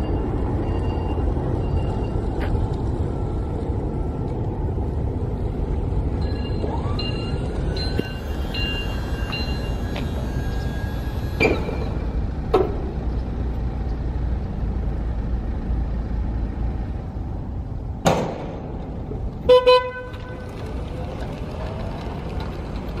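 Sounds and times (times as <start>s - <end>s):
vehicle horn beeps: 19.5s - 20.4s.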